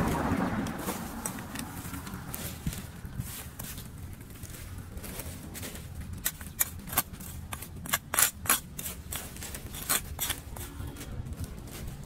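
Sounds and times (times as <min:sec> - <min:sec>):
trowel scraping on concrete: 0:06.2 - 0:11.1.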